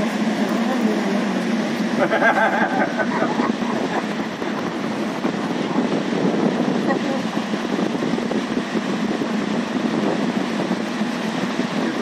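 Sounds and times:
faint voices: 0:00.0 - 0:04.6, 0:06.7 - 0:07.5
cable car running on cable: 0:00.0 - 0:12.0.

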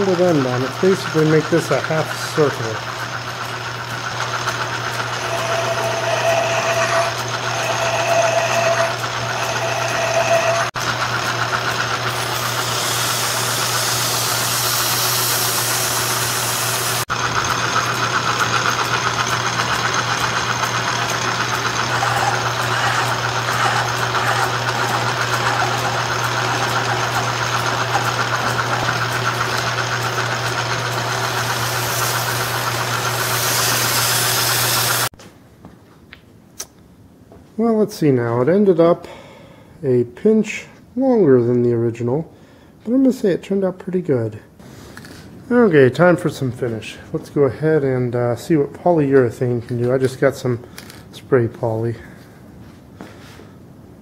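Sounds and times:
cutting tool whines: 0:00.0 - 0:35.1
lathe motor hum: 0:00.0 - 0:35.1
sandpaper hissing on spinning wood: 0:05.0 - 0:10.7, 0:12.0 - 0:17.1, 0:20.8 - 0:35.1.

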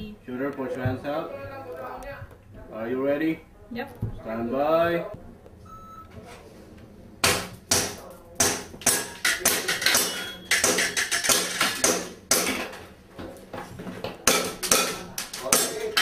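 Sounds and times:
pellets clanking on metal targets: 0:08.6 - 0:12.9.

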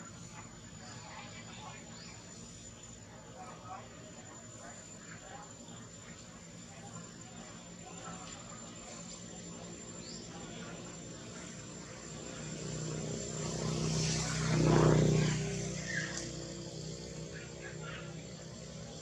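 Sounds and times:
motor engine passing by: 0:11.7 - 0:19.0.

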